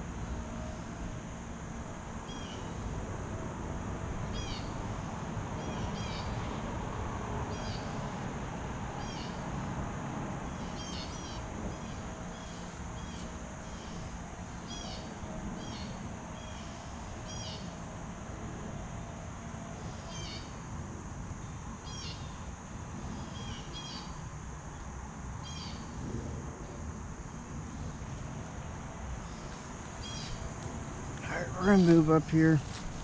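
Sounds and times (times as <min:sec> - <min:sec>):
constant high hiss: 0:00.0 - 0:33.0
low outdoor rumble: 0:22.3 - 0:33.0
bird calling: 0:29.3 - 0:30.5.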